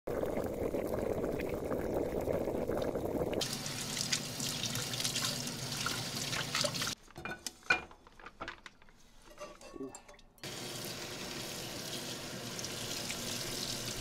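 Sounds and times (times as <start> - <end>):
water boiling in saucepan: 0.1 - 7.0, 10.4 - 14.0
tap water running in sink: 1.3 - 7.0, 10.4 - 14.0.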